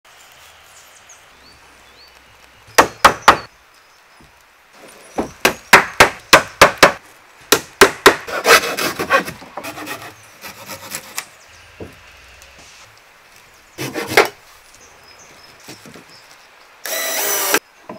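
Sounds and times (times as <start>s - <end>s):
hammer striking wooden planks: 2.8s - 3.5s, 5.2s - 9.3s
hand saw scraping wood: 8.3s - 11.3s, 13.8s - 14.4s.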